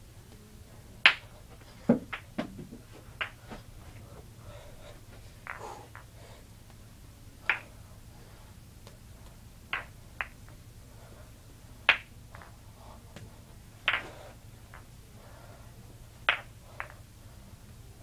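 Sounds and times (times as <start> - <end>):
faint low hum: 0.0 - 18.0
balls slapping into hands: 0.3 - 3.6, 5.4 - 6.8, 7.4 - 7.8, 8.8 - 10.6, 11.8 - 14.9, 16.2 - 17.0.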